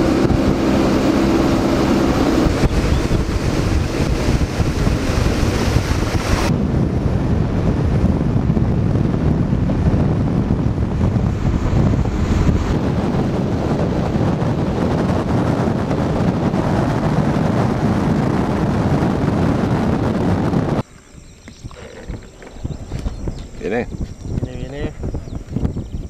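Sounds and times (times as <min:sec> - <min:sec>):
outboard motor running: 0:00.0 - 0:06.5
rushing water: 0:00.0 - 0:06.5
wind buffeting microphone: 0:00.0 - 0:26.0.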